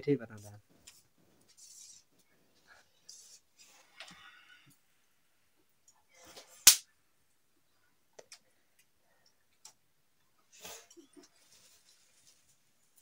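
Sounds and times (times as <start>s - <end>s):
soft rustle: 0.4s - 4.5s, 11.0s - 13.0s.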